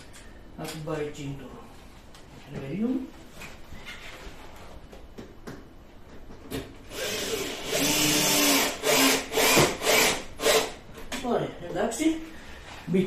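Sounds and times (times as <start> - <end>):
cordless drill driving a screw: 6.9 - 10.8.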